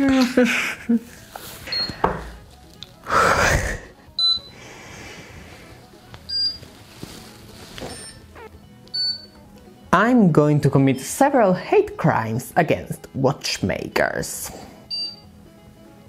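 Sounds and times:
background music: 0.0 - 16.0
breathy rush: 3.0 - 5.9.

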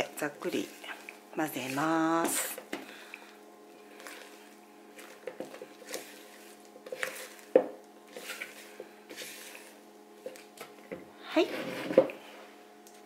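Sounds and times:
spatula folding thick batter: 3.9 - 10.6.

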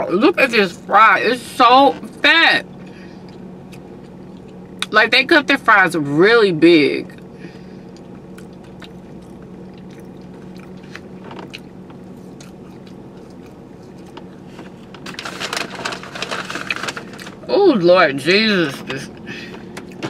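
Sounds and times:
steady low hum: 0.0 - 20.0
biting and chewing food: 2.0 - 4.9, 7.1 - 17.5, 18.8 - 20.0.

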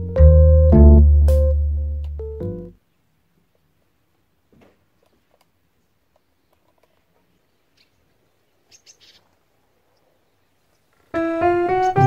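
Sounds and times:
piano-like keyboard music: 0.0 - 2.8, 11.1 - 12.0
faint high bird chirps: 5.8 - 12.0.

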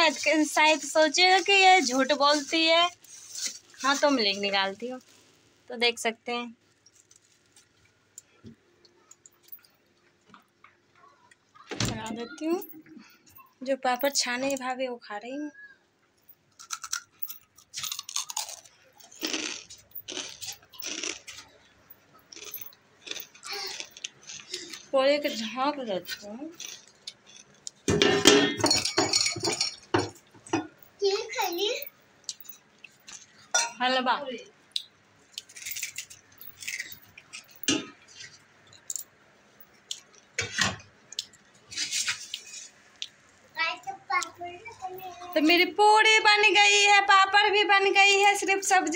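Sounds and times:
metal utensils scraping and clicking: 0.0 - 4.6, 35.4 - 39.0, 39.9 - 42.8
crunchy chewing: 16.5 - 24.9.

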